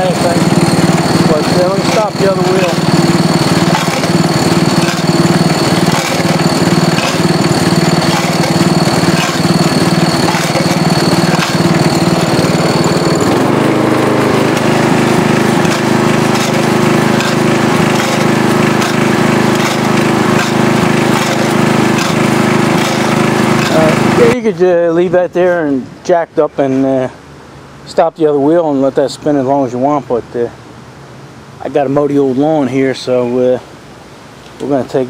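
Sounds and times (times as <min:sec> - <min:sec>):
lawn tractor engine running: 0:00.0 - 0:25.5
high whine: 0:00.0 - 0:25.8.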